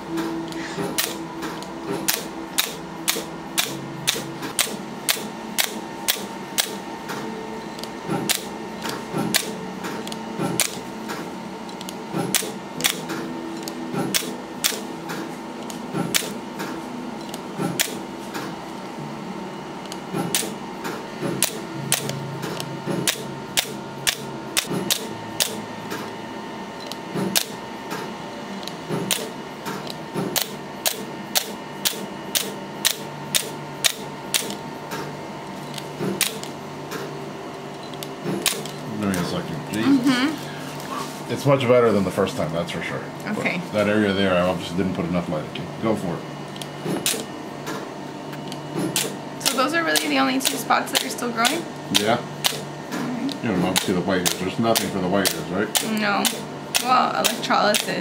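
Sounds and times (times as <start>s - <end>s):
laser pulses snapping: 0.2s - 18.5s, 19.9s - 26.1s, 26.8s - 28.1s, 28.9s - 35.1s, 35.7s - 37.1s, 38.0s - 39.3s, 46.6s - 58.0s.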